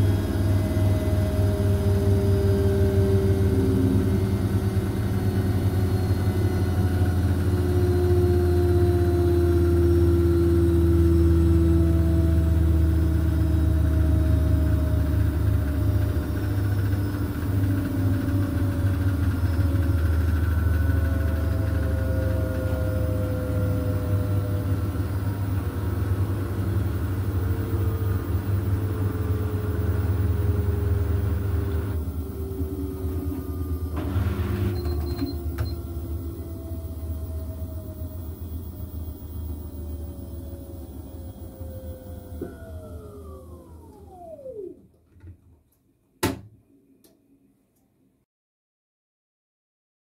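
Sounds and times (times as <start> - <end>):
washing machine drum spinning: 0.0 - 39.6.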